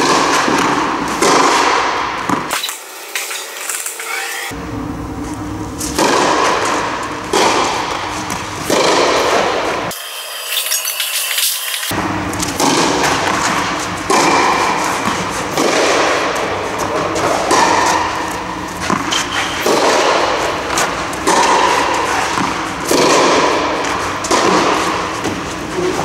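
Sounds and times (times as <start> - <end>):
tennis ball hit with rackets: 0.0 - 2.7, 5.8 - 9.9, 12.4 - 25.5.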